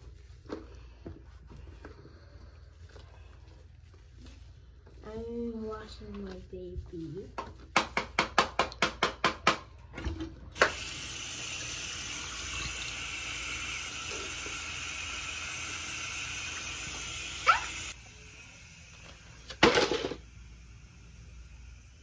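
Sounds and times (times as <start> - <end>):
faucet running: 10.6 - 19.1.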